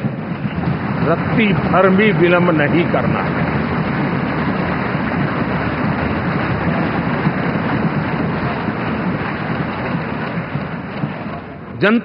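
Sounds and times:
audience clapping: 0:00.0 - 0:11.7
audience thumping desks: 0:00.0 - 0:12.0.

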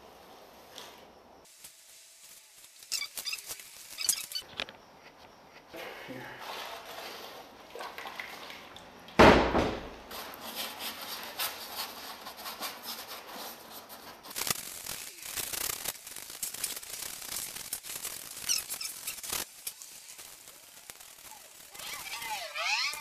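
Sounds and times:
loud bump: 0:09.2 - 0:10.0.

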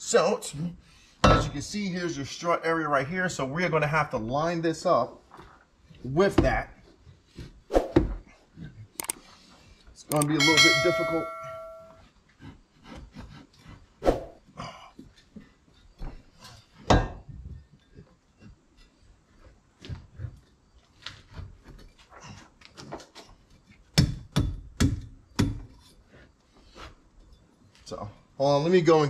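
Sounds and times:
metal bar knocks and clunks: 0:01.2 - 0:01.6, 0:10.2 - 0:12.0, 0:16.8 - 0:17.4
clicks and rustling: 0:09.0 - 0:09.3.

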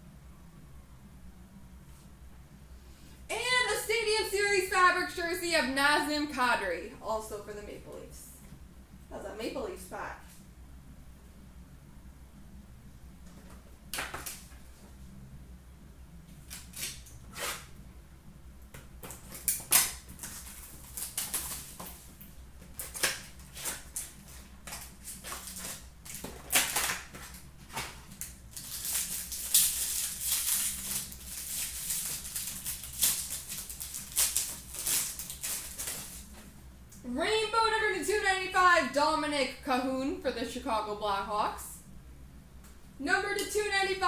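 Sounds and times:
faint steady hum: 0:00.0 - 0:44.0
card pack tearing: 0:19.0 - 0:22.1, 0:22.7 - 0:36.3.

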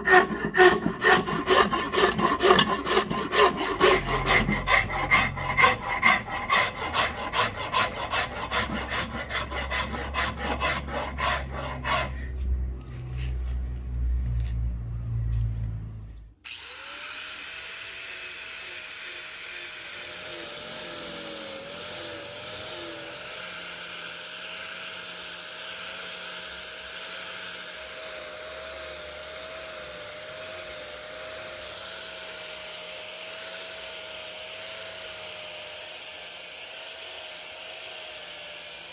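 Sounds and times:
hand file rasping on wood: 0:00.0 - 0:12.5
angle grinder sanding whine: 0:00.0 - 0:13.4, 0:16.5 - 0:38.9.

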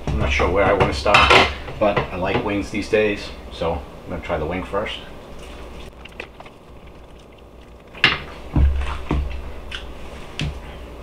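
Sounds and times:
man chewing: 0:05.3 - 0:10.0.

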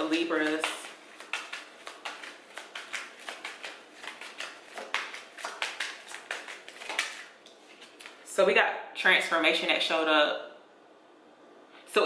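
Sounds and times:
cards being shuffled: 0:00.0 - 0:08.2.

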